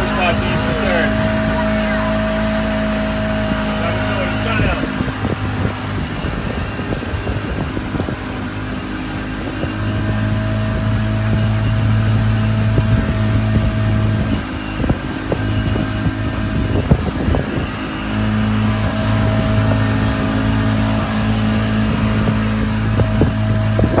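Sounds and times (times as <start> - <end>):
boat engine running: 0.0 - 24.0
water rushing: 0.0 - 24.0
wind on microphone: 0.0 - 24.0.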